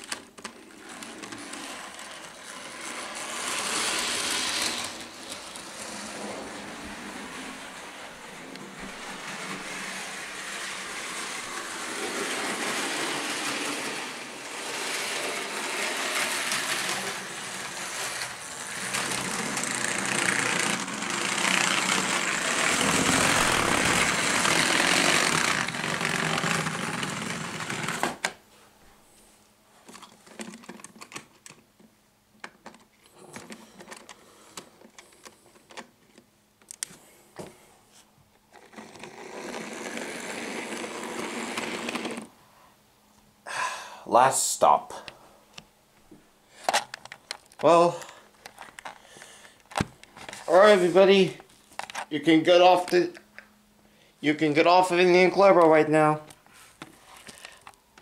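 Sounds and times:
toy train motor whir: 0.0 - 28.4, 38.5 - 42.3, 57.0 - 57.7.

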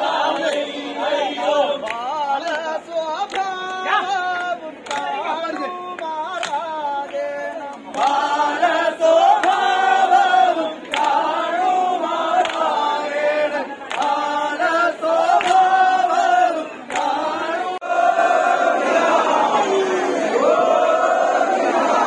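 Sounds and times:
male chorus singing: 0.0 - 22.0
hand clapping: 0.1 - 17.4.

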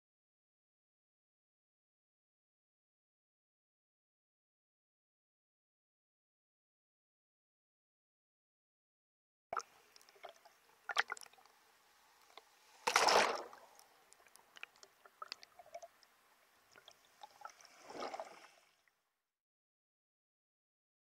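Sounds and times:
water sloshing and gurgling: 9.6 - 19.0
water surge: 12.5 - 13.8, 16.8 - 18.8.

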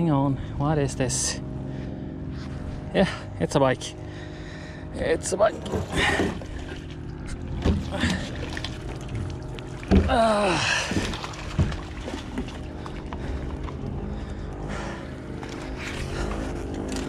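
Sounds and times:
low motor hum: 0.0 - 17.0
knocks and bumps: 5.5 - 13.8.

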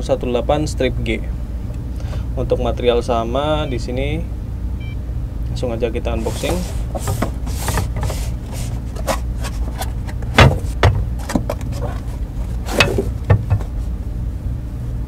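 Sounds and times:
steady low hum: 0.0 - 15.0
cardboard boxes rustling: 6.2 - 13.9.

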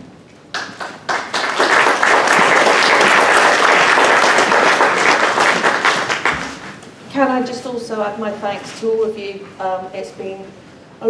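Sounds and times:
audience applauding: 0.5 - 6.8.

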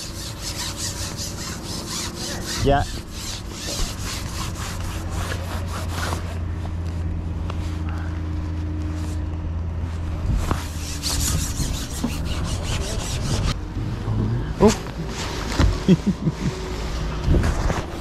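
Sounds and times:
vehicle engine idling: 4.2 - 11.2.

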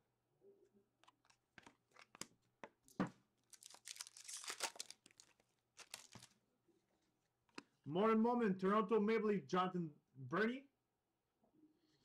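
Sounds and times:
wrapper crinkling and tearing: 3.4 - 6.4.

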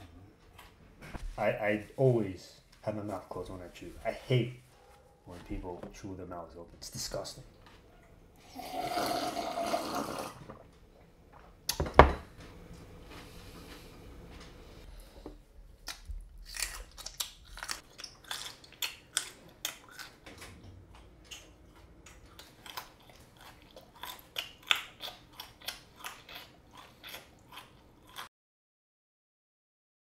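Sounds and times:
person chewing loudly: 13.2 - 28.3.

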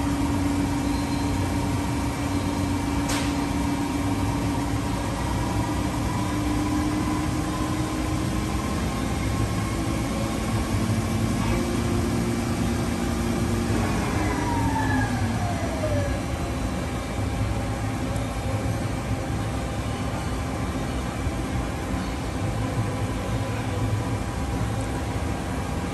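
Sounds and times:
whine gliding down in pitch: 13.6 - 16.7.

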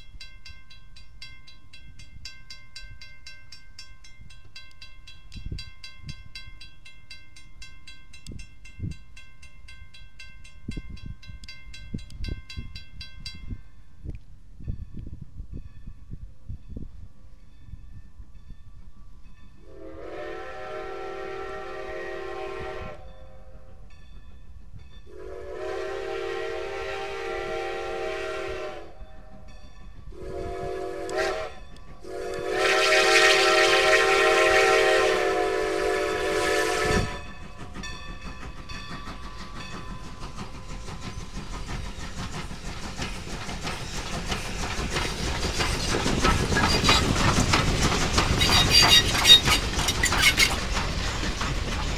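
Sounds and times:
locomotive running and rail clatter: 0.0 - 51.9
steam locomotive whistle blasts: 19.6 - 23.8, 25.1 - 29.4, 30.1 - 37.4, 48.4 - 49.6.

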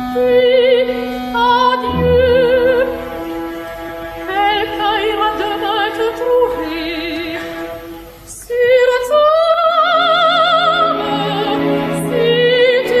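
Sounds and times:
operatic singing with vibrato: 0.2 - 13.0
orchestral accompaniment: 1.4 - 8.3, 10.2 - 13.0.

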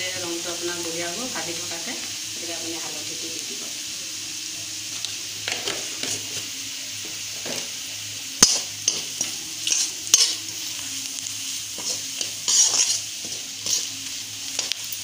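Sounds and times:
onions sizzling in oil: 0.0 - 15.0
metal spatula scraping pan: 8.4 - 10.5, 11.8 - 14.0.

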